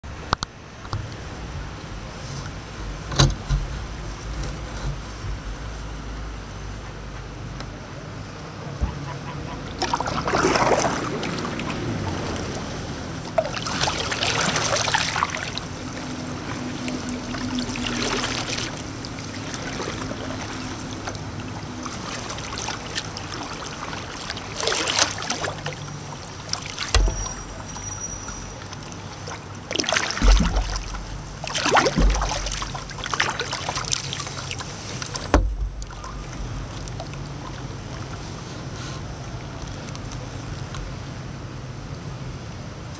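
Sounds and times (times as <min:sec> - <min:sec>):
water splashing around a kayak: 0:00.0 - 0:42.9
dull thumps: 0:26.9 - 0:27.5, 0:30.2 - 0:31.2, 0:31.8 - 0:32.7, 0:35.3 - 0:35.9.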